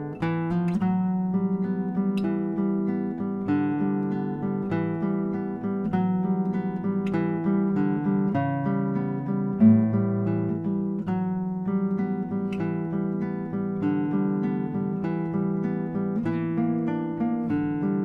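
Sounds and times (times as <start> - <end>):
acoustic guitar playing: 0.0 - 18.0.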